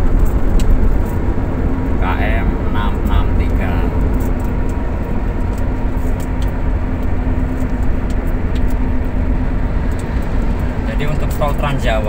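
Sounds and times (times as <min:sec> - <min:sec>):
car tyre roar on concrete: 0:00.0 - 0:12.0
steady hum: 0:00.0 - 0:12.0.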